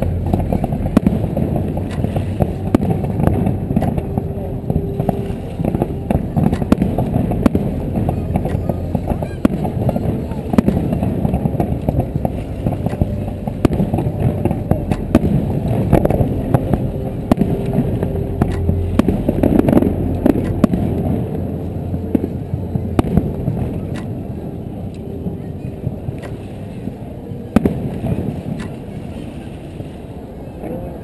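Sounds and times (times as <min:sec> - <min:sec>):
fireworks bangs and crackling: 0:00.0 - 0:04.1, 0:05.6 - 0:18.0, 0:27.6 - 0:28.6
murmur of voices: 0:00.0 - 0:31.0
steady low rumble: 0:00.0 - 0:31.0.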